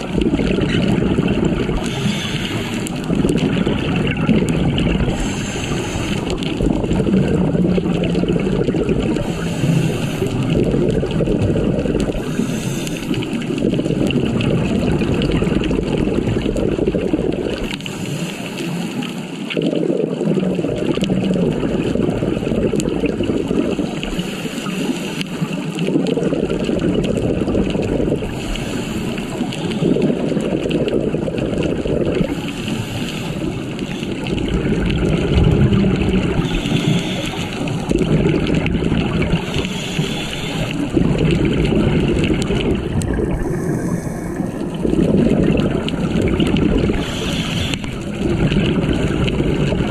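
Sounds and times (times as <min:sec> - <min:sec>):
exhaled air bubbling: 0:00.0 - 0:49.9
regulator air hiss: 0:01.9 - 0:02.8, 0:05.1 - 0:06.2, 0:12.2 - 0:13.2, 0:28.4 - 0:29.6, 0:32.3 - 0:34.0, 0:36.4 - 0:37.7, 0:39.4 - 0:40.7, 0:47.0 - 0:48.0.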